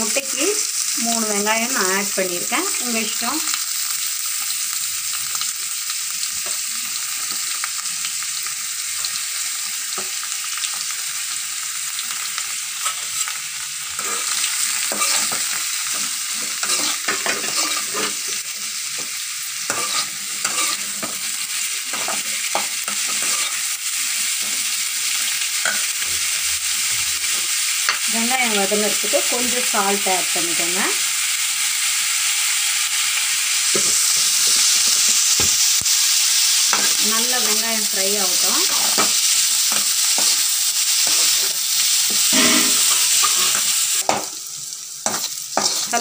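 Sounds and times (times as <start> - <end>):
onions sizzling in oil: 0.0 - 46.0
metal spoon scraping a pan: 14.0 - 26.4, 36.7 - 37.6, 38.3 - 44.4, 45.0 - 46.0.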